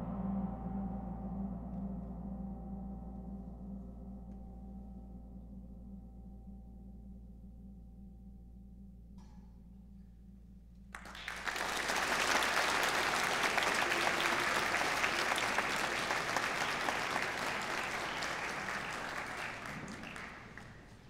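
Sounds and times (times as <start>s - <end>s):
audience applause: 11.0s - 21.0s.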